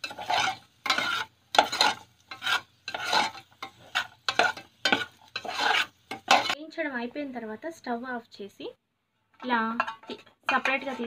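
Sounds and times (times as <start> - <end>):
metal spoon scraping a pan: 0.0 - 6.6, 9.4 - 11.0
nuts sizzling in hot fat: 0.0 - 6.6, 10.1 - 11.0.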